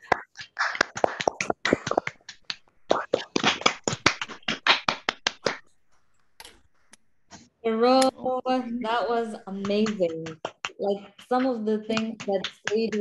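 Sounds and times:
people clapping: 0.0 - 5.7, 8.9 - 13.0.

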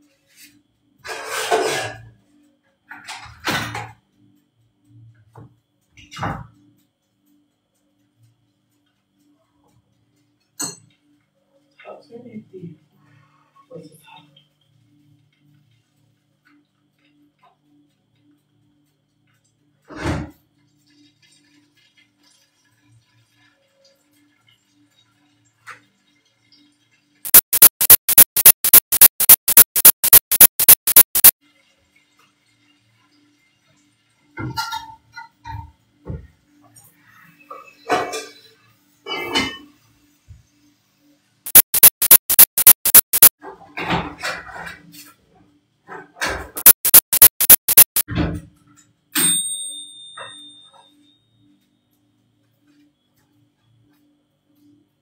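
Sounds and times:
faint background music: 0.0 - 27.2.

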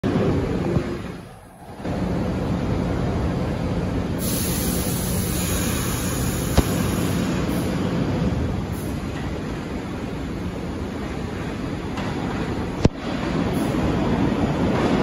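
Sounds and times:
subway train wheels rumbling: 0.0 - 15.0
hiss: 4.2 - 7.8.

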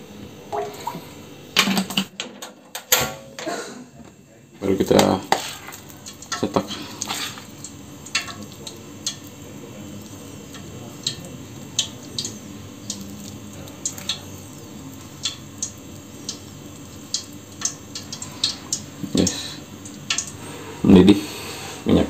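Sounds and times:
spoon stirring thick batter: 4.9 - 9.2.

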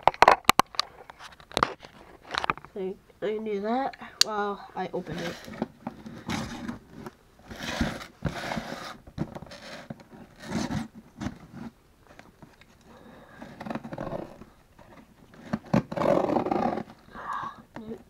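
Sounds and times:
cardboard box scraping and rustling: 5.0 - 11.8, 15.3 - 17.0.

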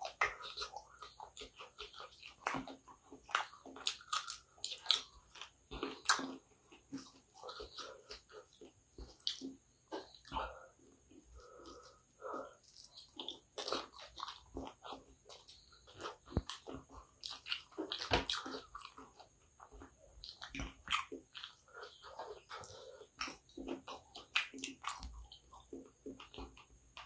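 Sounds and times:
chewing and wet mouth smacks: 0.0 - 27.0.

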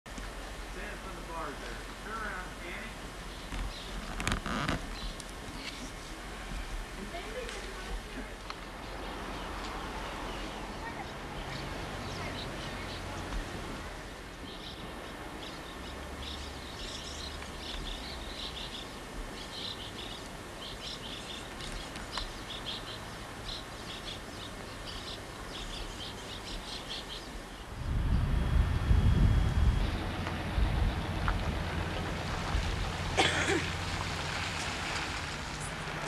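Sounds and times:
faint steady hum: 0.1 - 36.0
small songbirds chirping: 0.3 - 6.0, 7.1 - 13.6, 14.2 - 28.3
loud low rushing noise: 27.4 - 36.0.

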